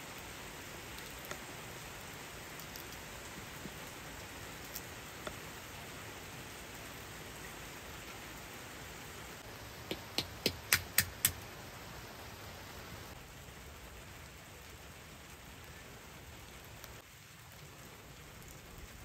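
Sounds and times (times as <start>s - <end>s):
steady rain hiss: 0.0s - 19.0s
quick sharp clicks: 9.9s - 11.4s.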